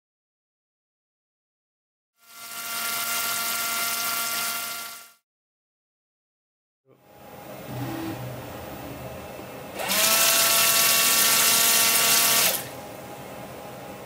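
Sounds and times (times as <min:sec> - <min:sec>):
steady mechanical hum: 0:06.9 - 0:14.0
washer pump motor whine: 0:07.2 - 0:14.0.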